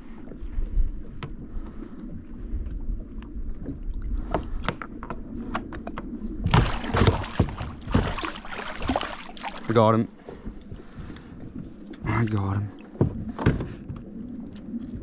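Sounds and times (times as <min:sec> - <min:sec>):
fish thrashing and splashing: 0:06.4 - 0:09.7.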